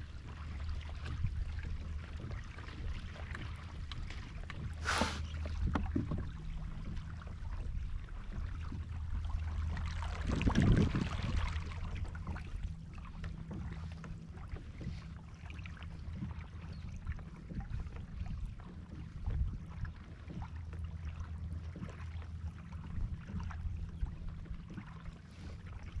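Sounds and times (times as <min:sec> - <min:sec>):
steady low rumble: 0:00.0 - 0:26.0
water lapping against kayak hull: 0:00.0 - 0:26.0
hissing splash: 0:04.8 - 0:05.3.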